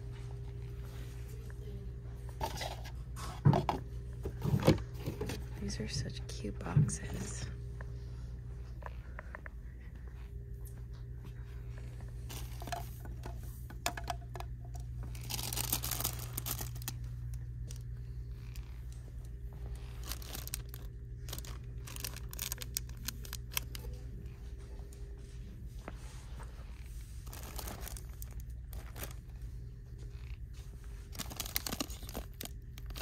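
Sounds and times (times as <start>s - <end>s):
low hum: 0.0s - 33.0s
plastic packaging crinkling: 12.3s - 24.0s, 27.2s - 29.4s, 30.9s - 33.0s.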